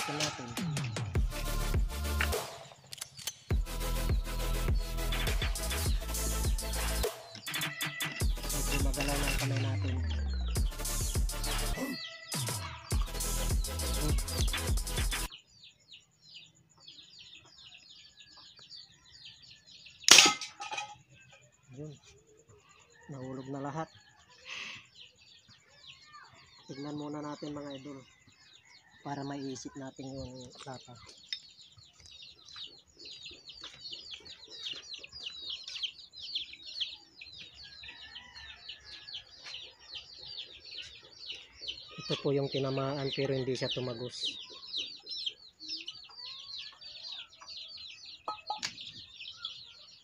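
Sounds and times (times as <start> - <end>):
small birds chirping: 0.0 - 1.3, 2.0 - 50.0
marble gun firing bang: 20.1 - 20.6.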